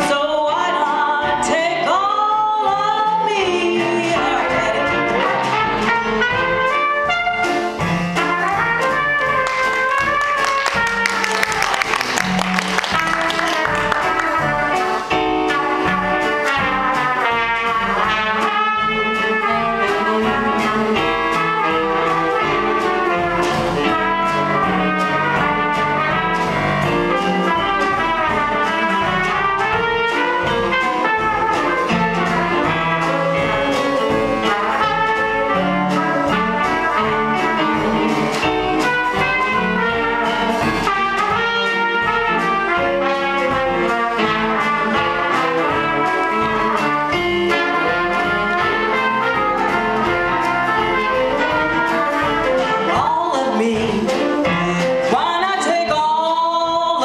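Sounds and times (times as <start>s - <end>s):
piano: 0.0s - 57.0s
trumpet jazz solo: 0.0s - 57.0s
upright bass: 0.7s - 18.2s.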